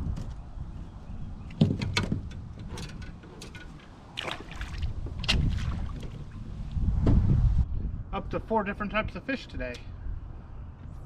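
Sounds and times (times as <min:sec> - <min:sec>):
wind rumble on microphone: 0:00.0 - 0:11.0
fishing gear knocks and clicks: 0:01.5 - 0:04.4.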